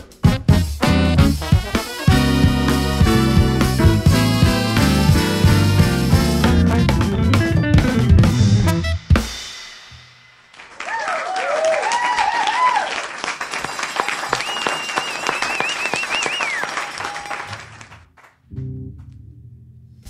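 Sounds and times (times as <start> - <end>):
jazz band playing: 0.0 - 10.0
audience applause: 10.5 - 18.4
audience whooping: 10.6 - 18.0
long whistle: 13.7 - 17.5.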